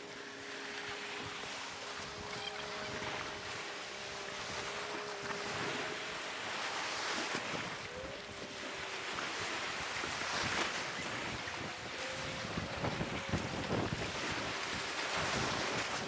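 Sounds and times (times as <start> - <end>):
surf breaking on rocky shore: 0.0 - 16.0
wind buffeting microphone: 7.0 - 16.0.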